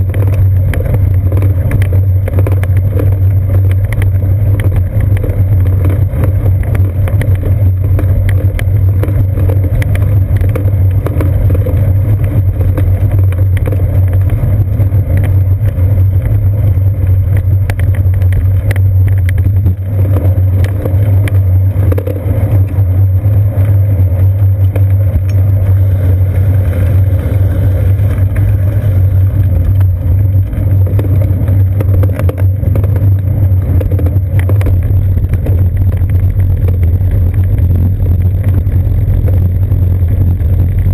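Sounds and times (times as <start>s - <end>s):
small rattling knocks: 0.0s - 16.4s
bicycle rolling over bricks: 0.0s - 40.9s.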